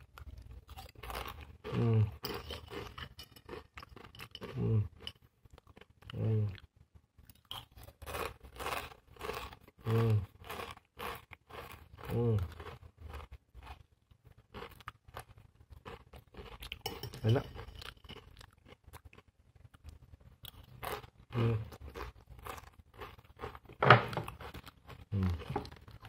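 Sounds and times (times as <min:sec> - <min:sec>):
crunchy snack being chewed: 0:00.0 - 0:26.0
low hummed voice sound: 0:01.7 - 0:02.3, 0:04.5 - 0:05.0, 0:06.1 - 0:06.6, 0:09.8 - 0:10.3, 0:12.0 - 0:12.5, 0:25.1 - 0:25.7.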